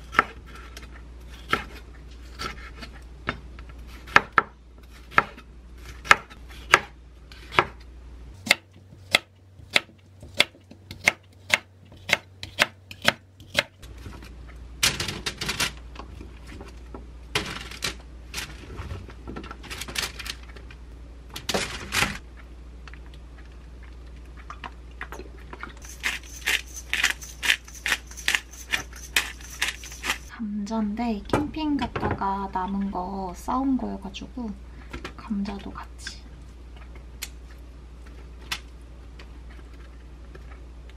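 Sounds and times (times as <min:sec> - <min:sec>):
knife chopping on wooden board: 0:08.4 - 0:13.7
pepper shaker rattling: 0:25.8 - 0:30.3.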